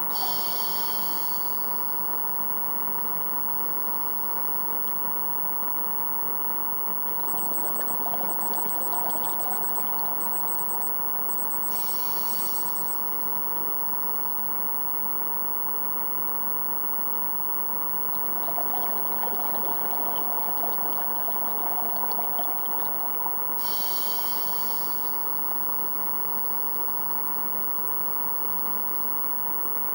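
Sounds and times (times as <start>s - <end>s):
bubbling exhaled air: 0.0s - 1.7s, 6.7s - 13.1s, 17.6s - 25.3s
hissing regulator inhalations: 0.1s - 1.6s, 8.0s - 12.8s, 23.5s - 25.2s
underwater rushing water: 7.2s - 12.4s, 18.1s - 24.9s.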